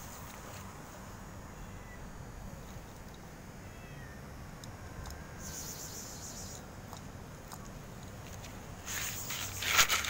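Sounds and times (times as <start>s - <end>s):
cat meowing faintly: 3.6s - 4.2s.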